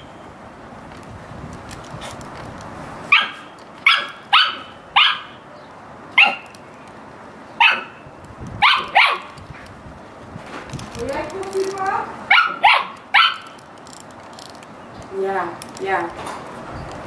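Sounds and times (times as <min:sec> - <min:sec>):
puppy yapping: 0:03.1 - 0:05.4, 0:06.2 - 0:06.5, 0:07.6 - 0:08.0, 0:08.6 - 0:09.4, 0:12.3 - 0:13.6.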